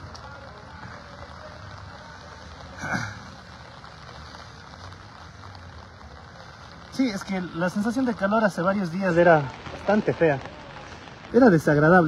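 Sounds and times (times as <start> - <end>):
outdoor background noise: 0.0 - 12.0
person clearing throat: 2.8 - 3.3.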